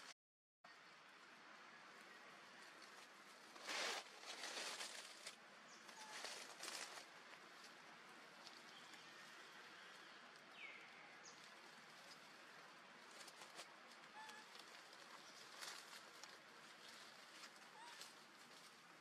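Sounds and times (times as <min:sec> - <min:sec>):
dry leaves rustling: 0:02.6 - 0:09.5, 0:11.3 - 0:19.0.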